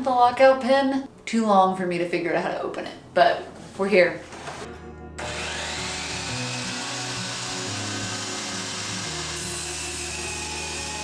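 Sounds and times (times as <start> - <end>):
miter saw cutting wood: 5.2 - 11.0.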